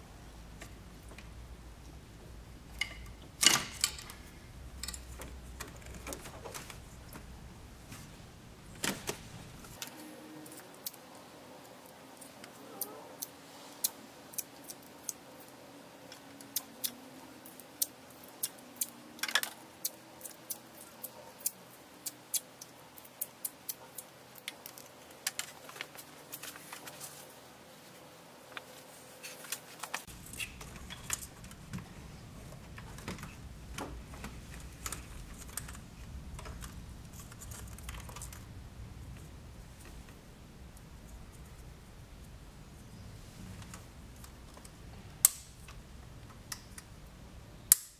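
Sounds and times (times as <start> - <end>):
wiring and plastic connectors clicking: 32.5 - 40.2, 43.6 - 47.0, 47.7 - 47.9.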